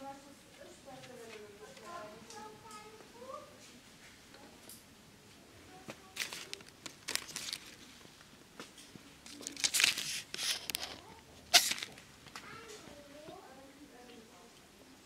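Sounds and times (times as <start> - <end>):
plastic packaging crinkling: 6.0 - 7.9, 9.2 - 12.0.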